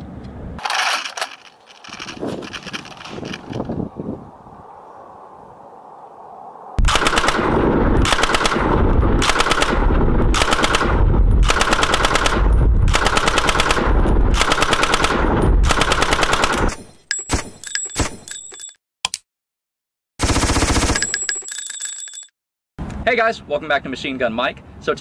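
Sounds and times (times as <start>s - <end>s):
machine gun automatic fire: 6.8s - 16.8s, 20.2s - 21.2s
sharp ringing clicks: 20.8s - 22.3s.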